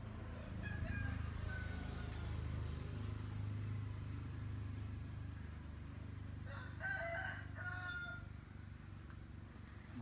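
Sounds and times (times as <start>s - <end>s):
steady low hum: 0.0s - 10.0s
rooster crowing: 0.2s - 2.7s, 6.4s - 8.5s.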